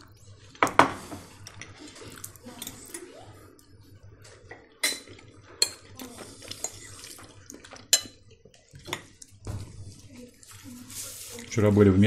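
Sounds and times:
cutlery clinking against plates: 0:04.5 - 0:07.0, 0:07.6 - 0:09.2.

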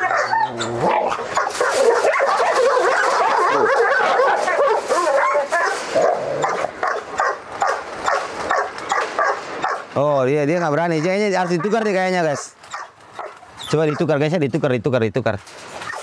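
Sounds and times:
dog barking aggressively: 0:00.0 - 0:09.9, 0:10.6 - 0:14.1.

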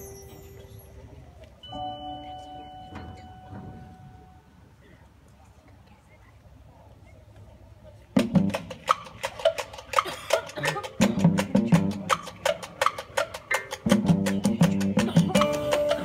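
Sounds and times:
marching band percussion: 0:08.2 - 0:16.0.

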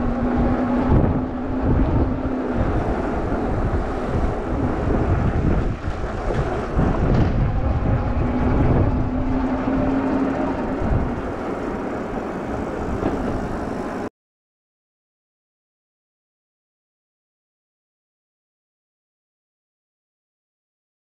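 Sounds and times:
tyre noise on road: 0:00.0 - 0:14.1
wind rumble on microphone: 0:00.0 - 0:14.1.

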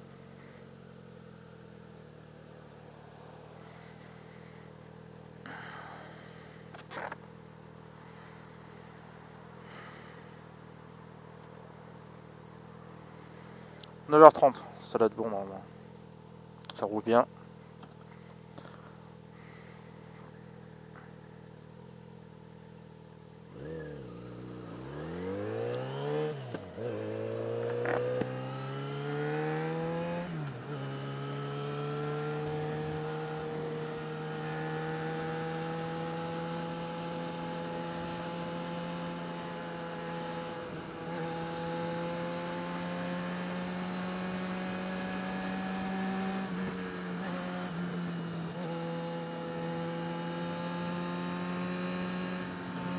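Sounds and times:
motorcycle engine idling and revving: 0:00.0 - 0:52.9.

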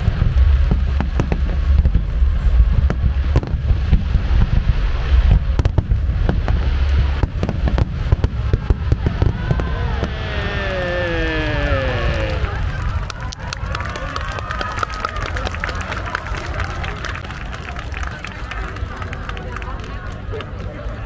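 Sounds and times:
fireworks booming: 0:00.0 - 0:14.0
fireworks sharp cracks: 0:00.0 - 0:17.2.

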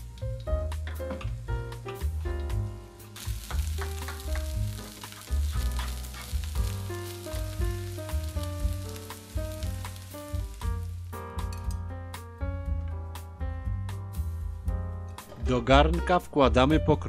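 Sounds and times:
background music: 0:00.0 - 0:17.0
vegetables sizzling in a frying pan: 0:02.6 - 0:11.2.

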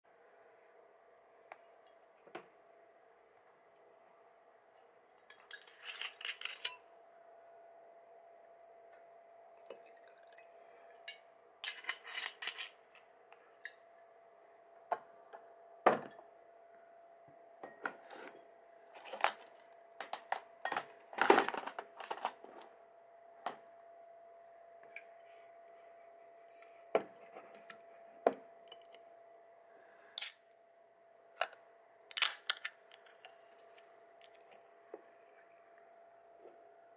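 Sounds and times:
faint steady hum: 0:00.1 - 0:36.9.

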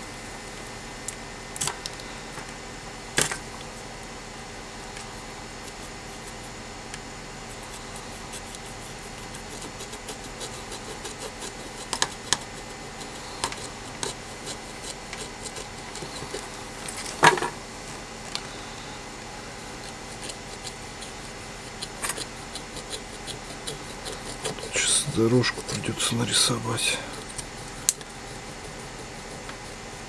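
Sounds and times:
faint steady hum: 0:00.0 - 0:30.0
soldering iron scraping circuit board: 0:07.4 - 0:17.2, 0:19.5 - 0:30.0.

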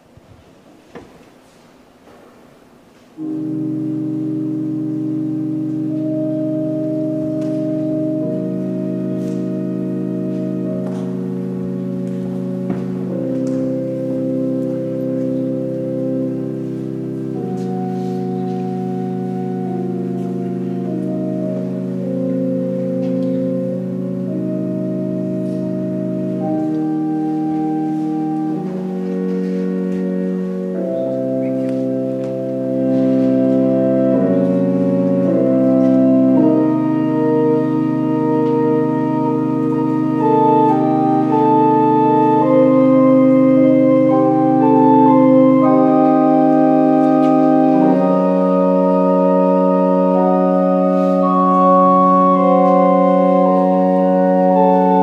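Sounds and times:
organ playing sustained chords: 0:00.0 - 0:55.0.

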